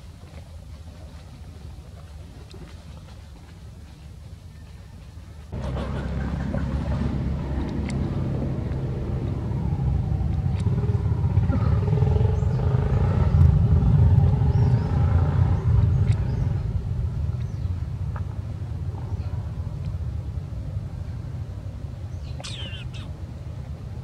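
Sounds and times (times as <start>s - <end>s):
motor vehicle engine running: 5.5s - 18.5s.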